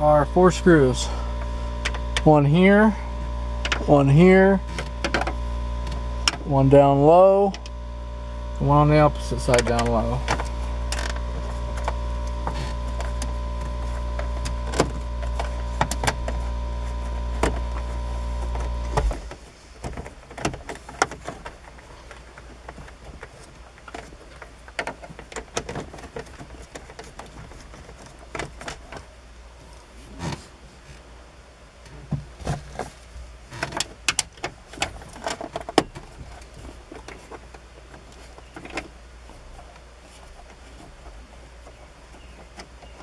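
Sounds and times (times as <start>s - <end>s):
low motor hum: 0.0s - 29.6s.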